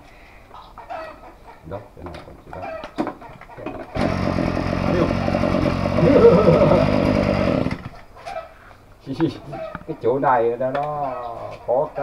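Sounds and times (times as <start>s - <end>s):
small two-stroke engine running: 4.0s - 7.9s.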